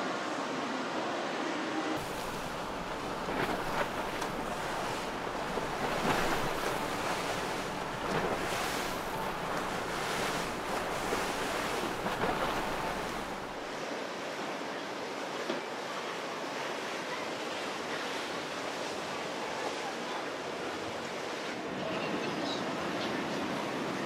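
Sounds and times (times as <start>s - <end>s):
rushing water and waves: 0.0s - 24.0s
wind buffeting microphone: 2.0s - 13.7s.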